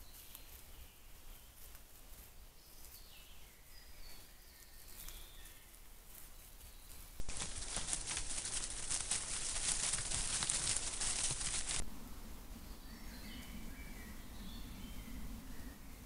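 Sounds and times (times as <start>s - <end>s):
animal rustling through dry leaves: 0.0s - 11.9s.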